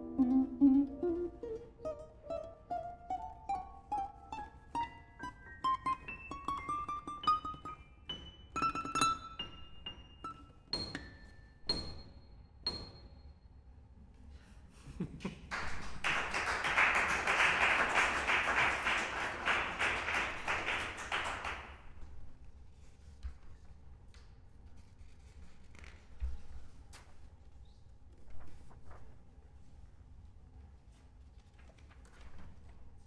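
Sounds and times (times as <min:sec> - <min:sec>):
plucked guitar notes: 0:00.0 - 0:07.6.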